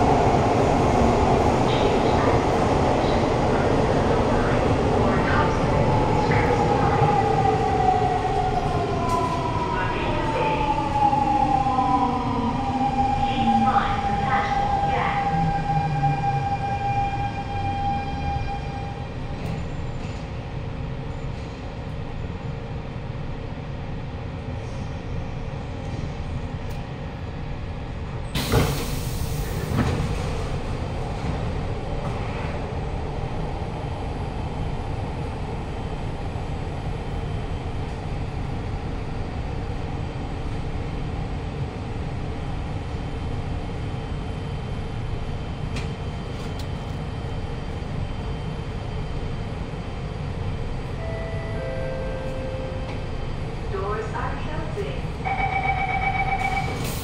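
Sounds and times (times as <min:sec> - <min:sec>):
train doors sliding open: 0:28.3 - 0:32.6, 0:56.4 - 0:57.0
train equipment humming: 0:43.4 - 0:57.0.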